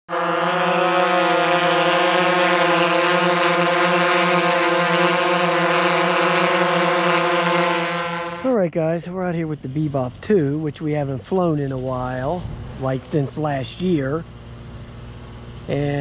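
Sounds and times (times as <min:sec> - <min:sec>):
drone propellers whining: 0:00.0 - 0:08.6.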